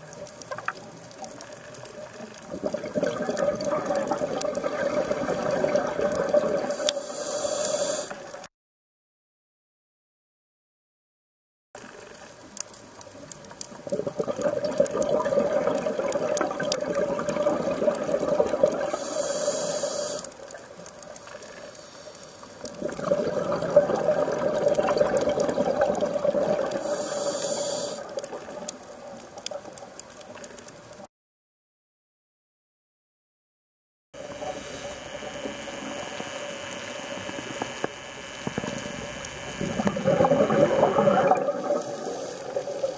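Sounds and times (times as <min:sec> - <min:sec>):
diver exhaling bubbles: 0:02.5 - 0:06.8, 0:13.9 - 0:19.0, 0:22.7 - 0:26.9, 0:38.5 - 0:42.9
regulator hiss: 0:06.7 - 0:08.4, 0:18.8 - 0:20.5, 0:21.3 - 0:22.7, 0:26.8 - 0:28.2, 0:34.2 - 0:42.9.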